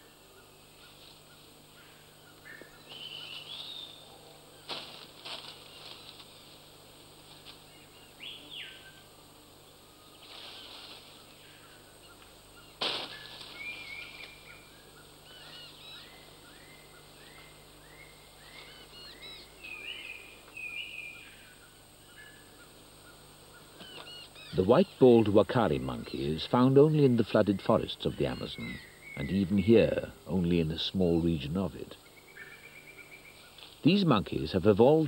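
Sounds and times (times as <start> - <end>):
sharp crack: 12.8 - 13.6.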